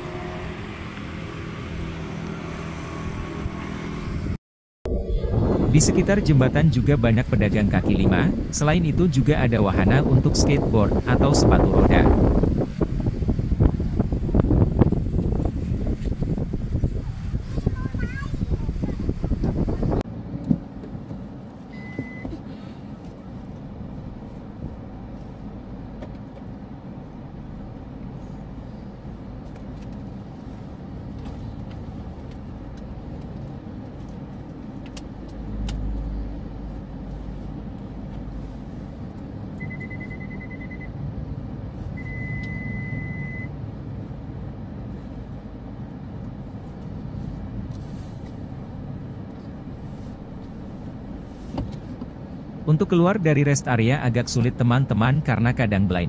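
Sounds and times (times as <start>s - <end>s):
car engine rumble: 0.0s - 56.0s
short high electronic beeps: 39.6s - 40.9s.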